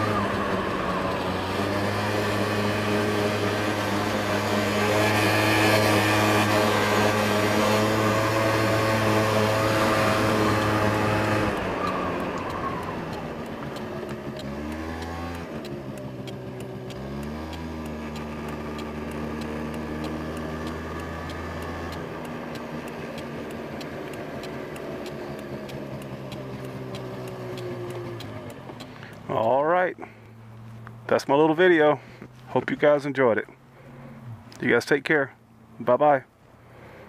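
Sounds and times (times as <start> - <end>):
scooter engine running: 0.0 - 32.6.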